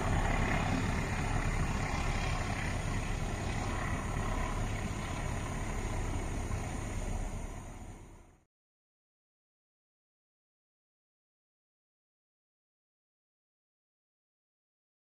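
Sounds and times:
train rolling on rails: 0:00.0 - 0:08.2.

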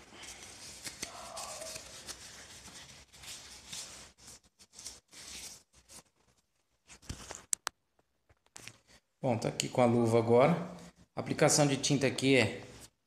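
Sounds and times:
disposable glove rustling: 0:00.0 - 0:09.1.

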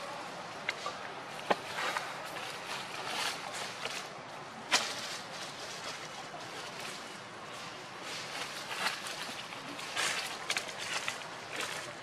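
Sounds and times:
outdoor rustling: 0:00.0 - 0:12.0.

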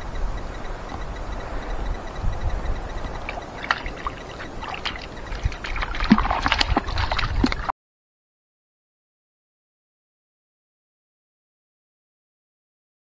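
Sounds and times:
wind rumble on microphone: 0:00.0 - 0:07.7
dog splashing in water: 0:03.3 - 0:07.7.

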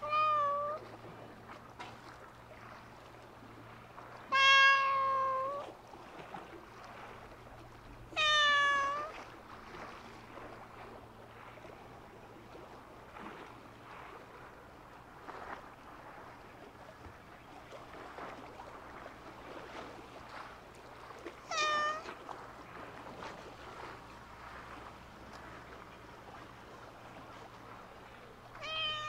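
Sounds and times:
cat meowing: 0:00.0 - 0:00.8, 0:04.3 - 0:05.7, 0:08.1 - 0:09.2, 0:21.4 - 0:22.2, 0:28.6 - 0:29.0.

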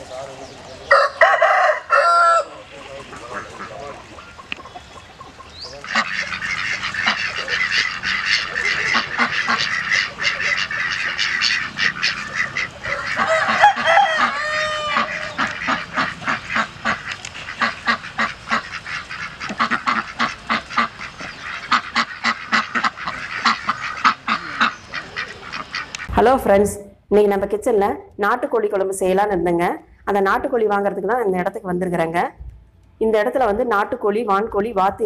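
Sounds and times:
ducks quacking: 0:00.0 - 0:26.8
wavering pitched call: 0:03.8 - 0:26.5.

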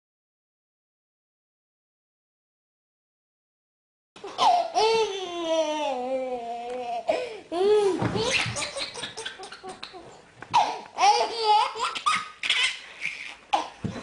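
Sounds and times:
baby laughing: 0:04.2 - 0:14.0.

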